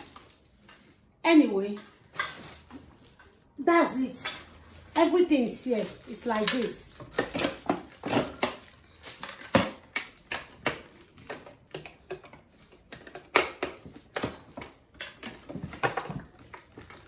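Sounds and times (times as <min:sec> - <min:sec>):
plastic bag crinkling: 0:00.0 - 0:11.7, 0:15.2 - 0:17.0
hard plastic parts clicking and knocking: 0:06.4 - 0:17.0.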